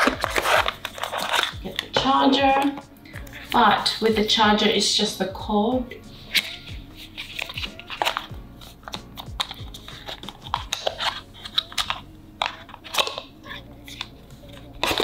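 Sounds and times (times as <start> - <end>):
card packaging crinkling: 0.0 - 2.0, 6.3 - 15.0
charging cable being handled: 0.0 - 2.8, 6.3 - 15.0.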